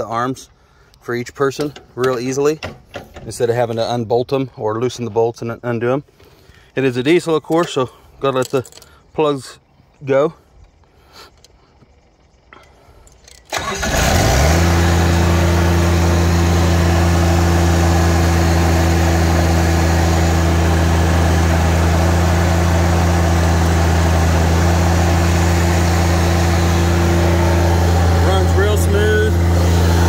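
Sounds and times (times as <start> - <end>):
diesel mower engine starting and idling: 11.8 - 30.0.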